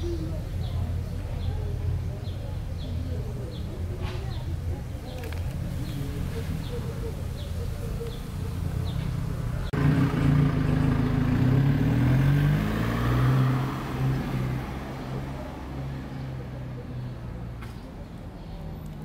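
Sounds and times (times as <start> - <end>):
street traffic rumble: 0.0 - 19.0
vehicle engine running close by: 5.2 - 17.5.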